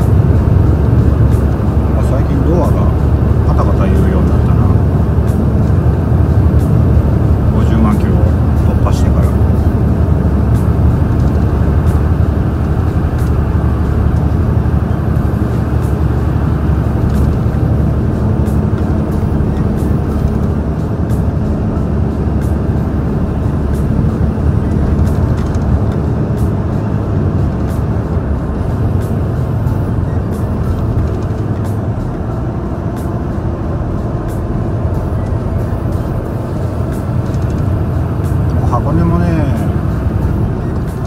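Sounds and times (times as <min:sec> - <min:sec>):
truck diesel engine drone: 0:00.0 - 0:41.0.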